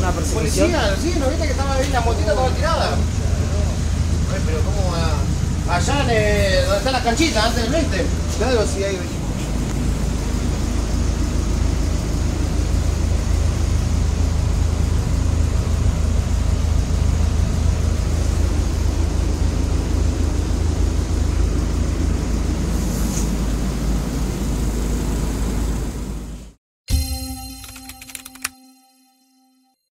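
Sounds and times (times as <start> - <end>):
bus engine droning: 0.0 - 26.6.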